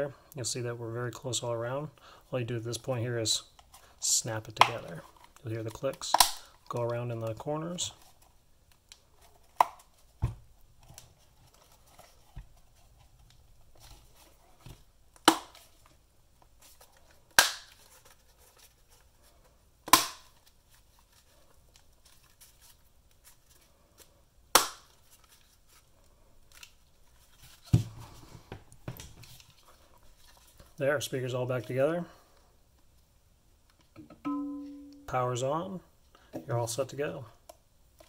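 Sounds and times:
faint handling noise: 2.9s - 14.9s, 24.9s - 30.8s.

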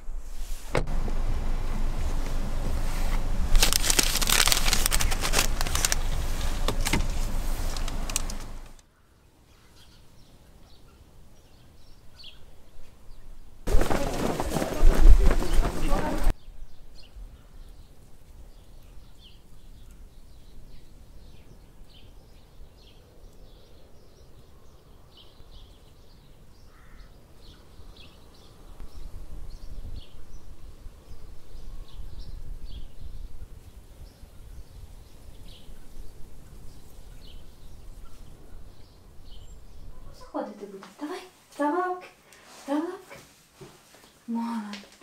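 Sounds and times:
low outdoor rumble: 0.0s - 8.8s
small birds chirping: 1.6s - 14.4s, 15.0s - 42.9s.

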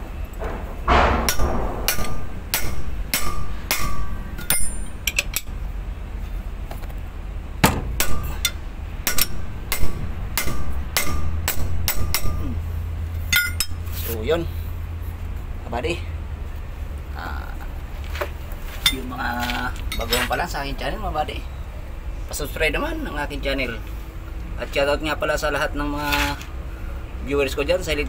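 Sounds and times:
spanner clinking on metal bolts: 0.4s - 5.6s, 13.3s - 13.8s.

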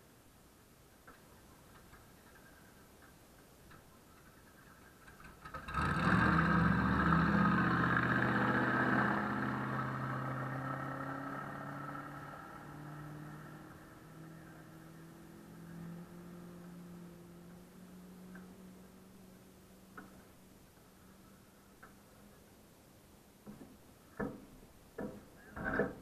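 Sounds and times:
off-road vehicle engine passing: 4.8s - 20.4s.

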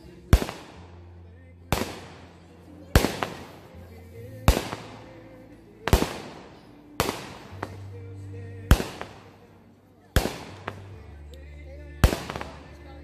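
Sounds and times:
fireworks bangs: 0.3s - 1.0s, 1.7s - 3.7s, 4.4s - 5.2s, 5.8s - 8.0s, 12.0s - 12.8s.

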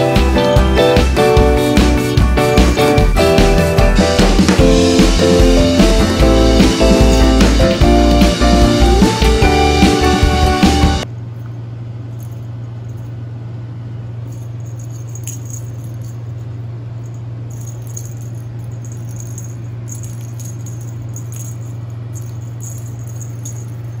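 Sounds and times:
small bell jingling: 4.9s - 8.2s, 14.2s - 24.0s
steady low hum: 11.0s - 24.0s.

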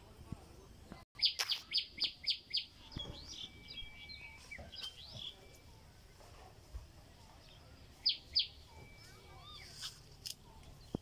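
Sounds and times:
bird chirping: 1.2s - 6.1s, 7.2s - 11.0s
thin steady whistle-like tone: 8.0s - 10.1s.

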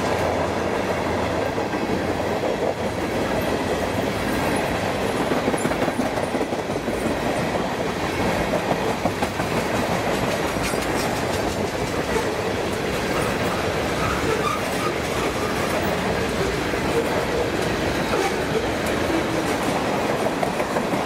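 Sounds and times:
steel train wheels rumbling on rail: 0.0s - 21.0s
wheels clicking over rail joints: 8.3s - 21.0s.

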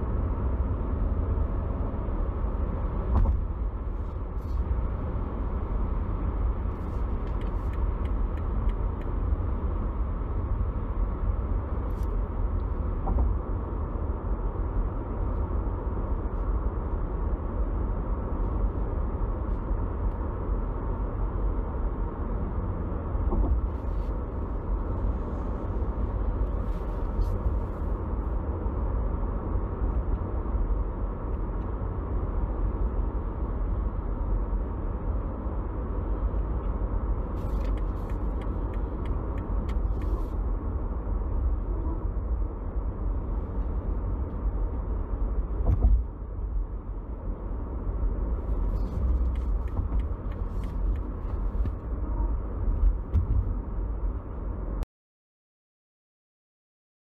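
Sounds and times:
diesel car engine rumble: 0.0s - 54.8s
road noise: 0.0s - 54.8s.

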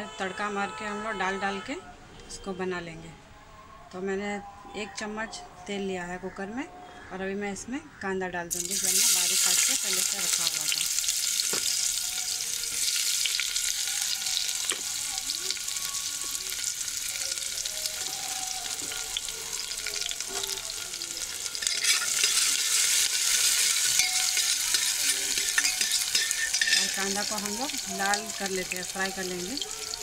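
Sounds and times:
onion sizzling in oil: 8.5s - 30.0s.

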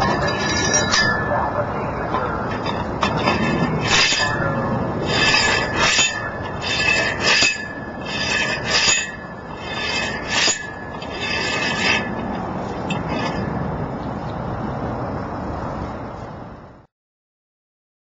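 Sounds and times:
metal tube scraping on post: 0.0s - 14.2s.

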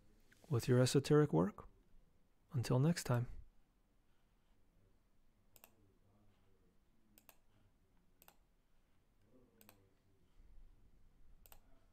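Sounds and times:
computer mouse clicks: 5.5s - 5.8s, 7.2s - 7.4s, 8.2s - 8.4s, 9.6s - 9.8s, 11.4s - 11.7s.

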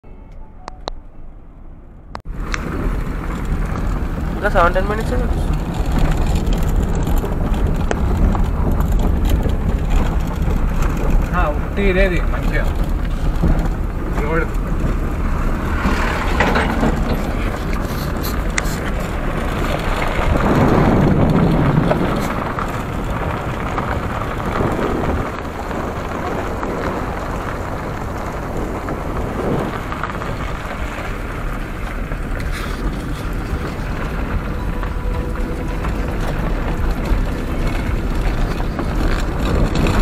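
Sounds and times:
car tyres and engine rumble: 0.0s - 40.0s
wind rushing over microphone: 2.1s - 40.0s.

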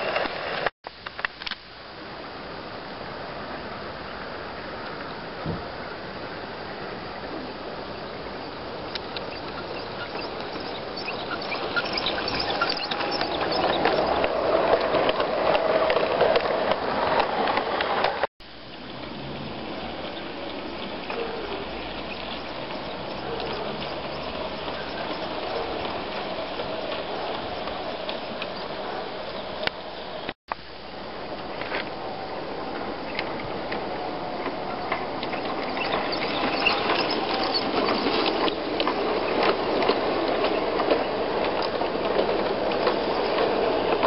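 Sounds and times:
model train wheels rattling: 8.3s - 18.3s, 19.8s - 29.7s, 32.6s - 44.0s.

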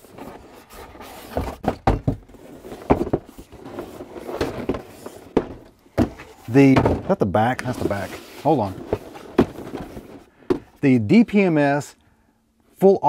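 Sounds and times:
cardboard scraping and rustling: 0.0s - 10.3s
box knocks and thumps: 0.2s - 10.8s.

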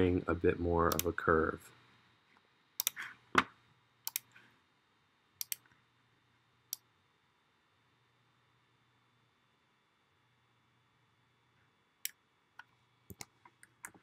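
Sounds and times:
computer mouse clicks: 0.9s - 1.1s, 2.8s - 3.1s, 4.0s - 4.4s, 5.4s - 5.8s, 12.0s - 14.0s.

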